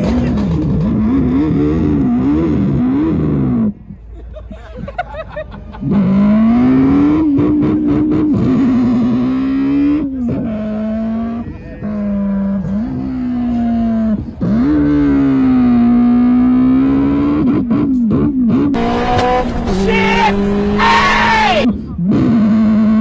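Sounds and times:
car engine revving high: 5.8 - 23.0.

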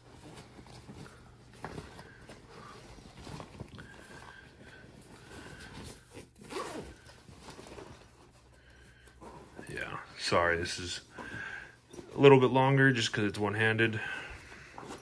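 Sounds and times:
fabric rustling: 0.0 - 12.9
backpack zipper opening: 5.9 - 8.1.

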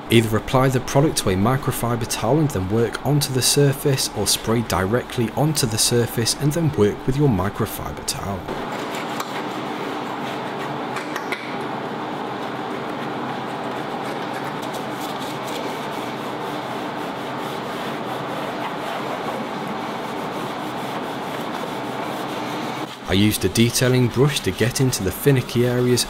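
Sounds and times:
towel rubbing on metal: 13.4 - 26.0.

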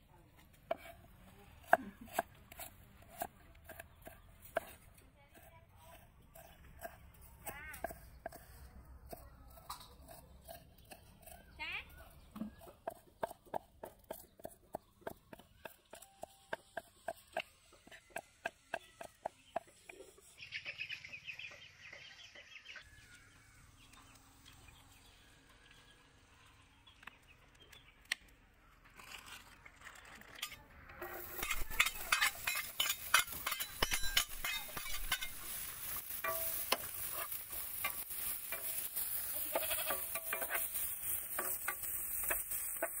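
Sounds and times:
metal spoon scraping a pan: 29.0 - 43.0
onion sizzling in oil: 31.0 - 43.0.

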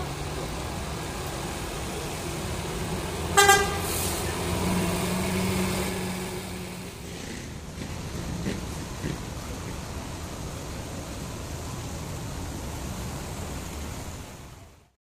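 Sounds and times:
bus engine running: 0.0 - 14.8
vehicle horn honk: 3.4 - 4.1.

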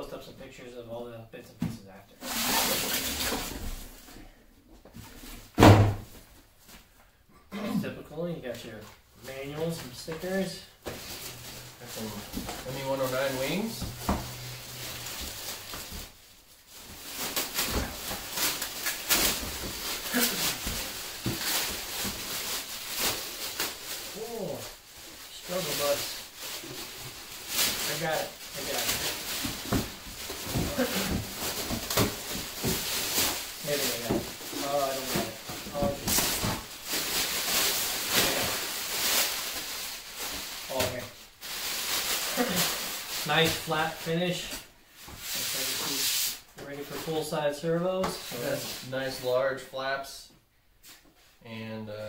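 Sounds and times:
plastic wrapping crinkling: 2.2 - 4.0, 9.2 - 47.6.

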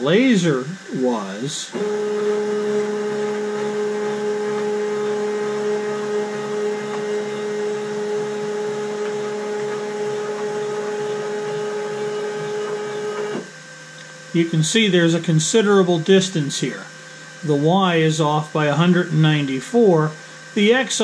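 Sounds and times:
stepper motors whining: 0.0 - 21.0.

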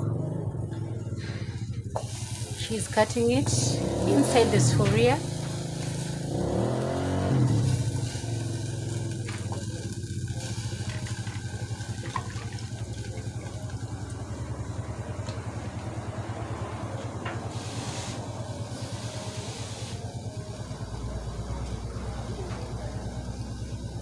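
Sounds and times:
small engine running: 0.0 - 24.0
brief hiss: 17.5 - 18.2.

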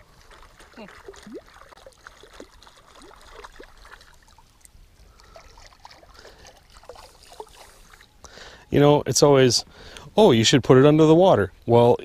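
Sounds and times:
water lapping against boat: 0.0 - 8.2
water plinks and drips: 0.0 - 8.2.

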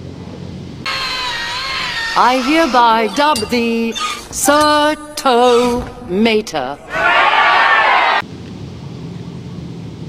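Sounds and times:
large crowd cheering: 0.9 - 3.1, 6.8 - 8.2.

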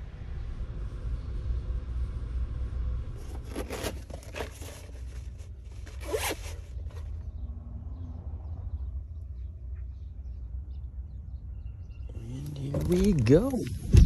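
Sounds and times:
steady low rumble: 0.0 - 3.6, 7.2 - 14.0
zipper zipping: 5.9 - 6.6.

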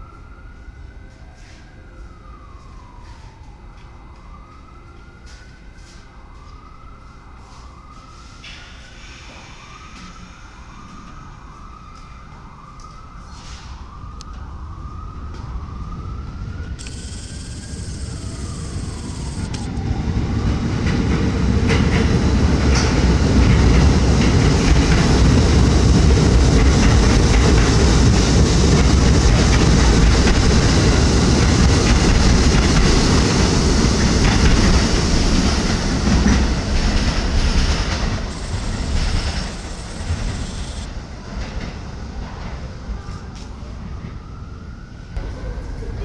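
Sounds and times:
subway train wheels clacking: 16.6 - 44.3.

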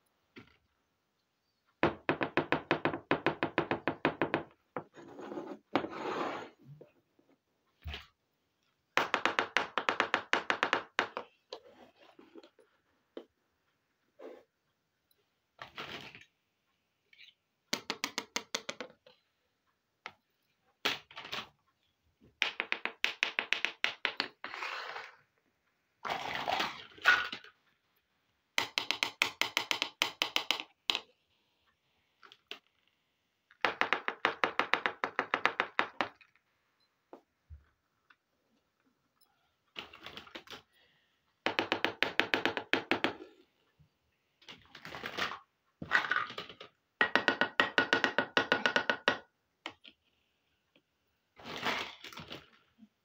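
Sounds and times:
plastic toys clicking and tapping: 17.7 - 19.3, 22.2 - 24.4, 28.6 - 31.2, 41.4 - 43.2, 44.4 - 50.1.

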